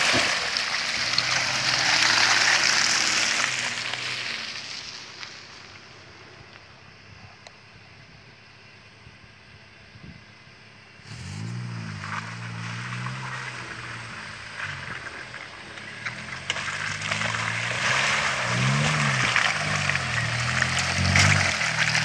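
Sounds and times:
engine revving: 0.0s - 4.4s, 11.0s - 22.0s
tyres splashing through mud: 0.0s - 5.9s, 11.1s - 22.0s.

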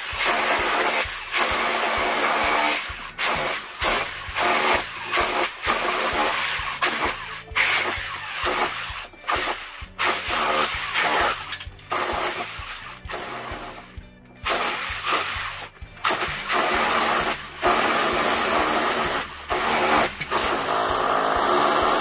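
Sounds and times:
demolition hammer chipping brick: 0.0s - 22.0s.

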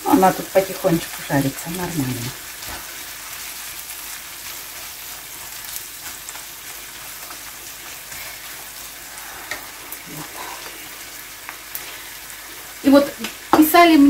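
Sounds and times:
vegetables sizzling in a pan: 0.0s - 14.0s.

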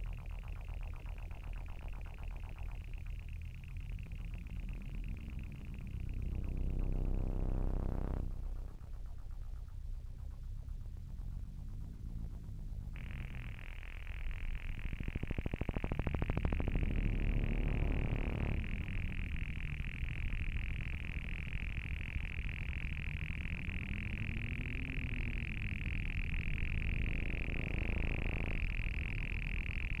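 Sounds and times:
high-pitched electronic whine: 0.0s - 30.0s
low distorted buzz: 0.0s - 30.0s
fast stuttering pulse: 12.4s - 30.0s.

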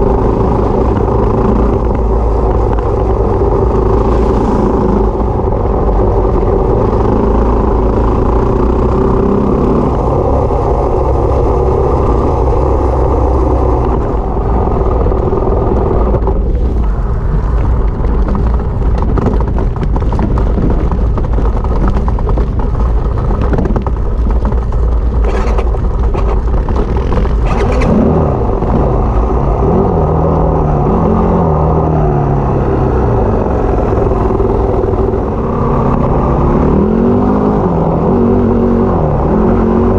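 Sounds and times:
dirt bike engine revving: 26.8s - 31.8s.

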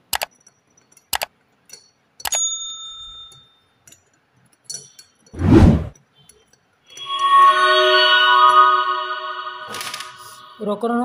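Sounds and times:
short loud whoosh: 5.4s - 5.9s.

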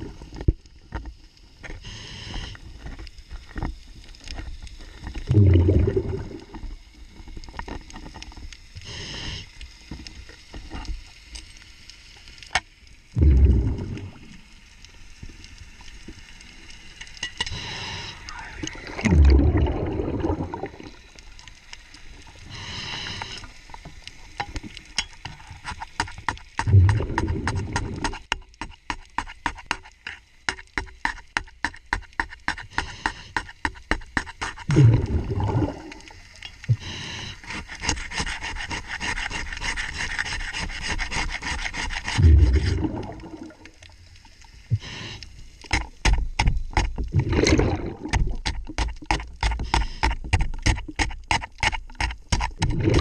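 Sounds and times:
regulator hissing inhalations: 1.8s - 2.8s, 8.8s - 9.7s, 17.4s - 18.9s, 22.4s - 23.7s, 32.7s - 33.5s, 36.7s - 37.7s, 44.7s - 45.6s, 49.6s - 50.3s
exhaled bubbles rumbling: 5.2s - 7.4s, 13.1s - 14.6s, 18.2s - 21.3s, 26.6s - 28.1s, 34.7s - 36.8s, 42.2s - 44.0s, 47.0s - 48.8s, 52.6s - 53.0s
hand scraper scraping rudder: 37.4s - 42.2s.

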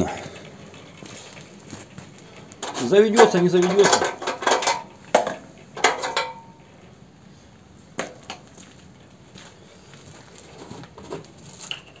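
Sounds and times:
metallic clicks and knocks: 2.4s - 6.5s.

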